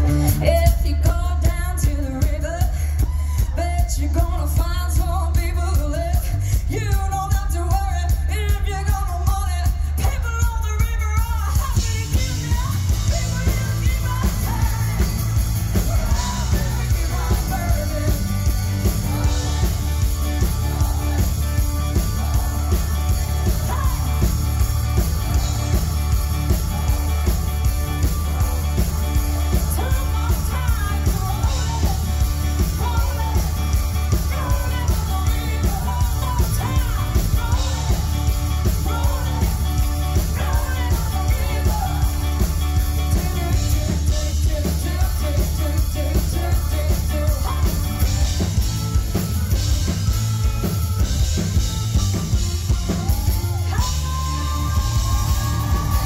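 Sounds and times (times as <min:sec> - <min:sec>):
live rock band playing: 0:00.0 - 0:56.0
woman singing into microphone: 0:00.2 - 0:15.2, 0:34.2 - 0:38.0.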